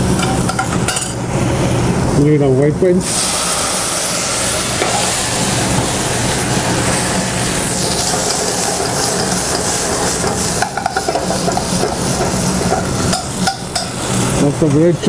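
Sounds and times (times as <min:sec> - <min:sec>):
wine sizzling in hot oil: 0:03.0 - 0:14.5.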